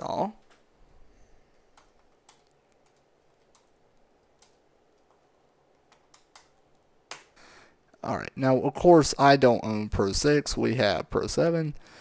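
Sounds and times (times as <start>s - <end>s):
keystrokes on computer keyboard: 1.7s - 7.4s.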